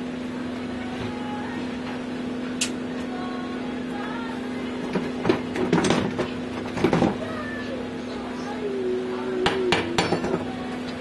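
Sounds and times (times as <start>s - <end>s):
sharp click: 2.6s - 2.8s.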